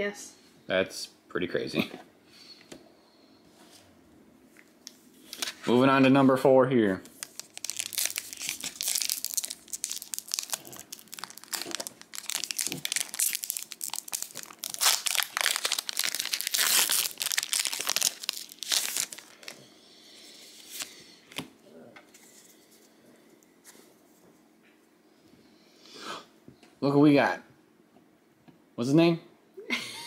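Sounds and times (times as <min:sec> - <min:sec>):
plastic wrapper crinkling and tearing: 0:07.1 - 0:19.6.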